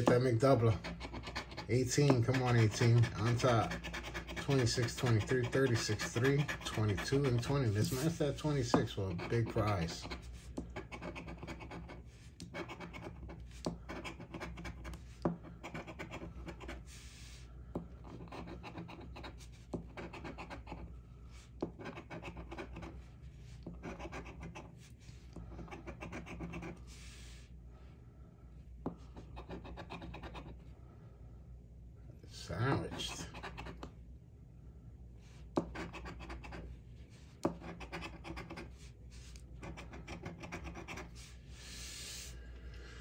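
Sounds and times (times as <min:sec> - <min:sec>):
coin scraping scratch-off ticket: 0:00.4 - 0:10.2.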